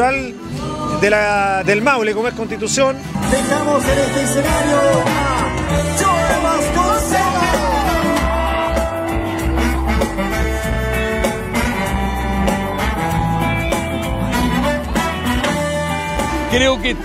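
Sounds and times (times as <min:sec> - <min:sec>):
latin band music: 0:00.0 - 0:17.0.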